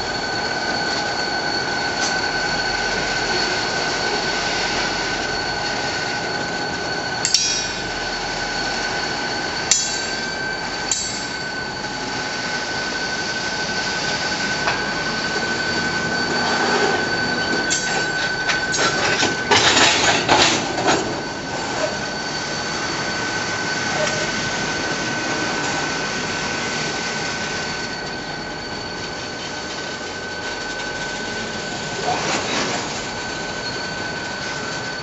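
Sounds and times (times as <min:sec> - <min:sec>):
train wheels squealing: 0:00.0 - 0:35.0.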